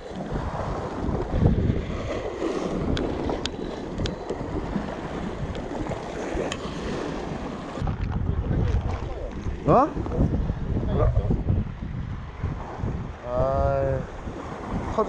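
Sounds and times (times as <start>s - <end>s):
waves washing against rocks: 0.0s - 10.8s, 14.1s - 15.0s
wind buffeting microphone: 0.0s - 15.0s.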